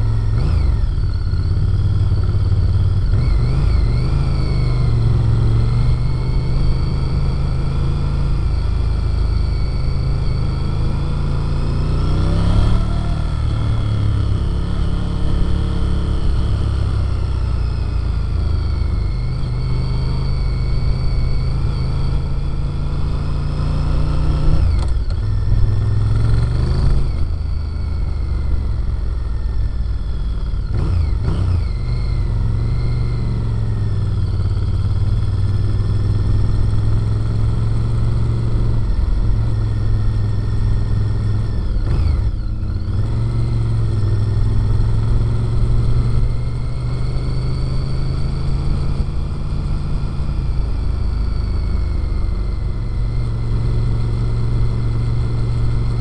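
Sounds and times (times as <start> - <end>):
motorcycle engine and exhaust: 0.0 - 56.0.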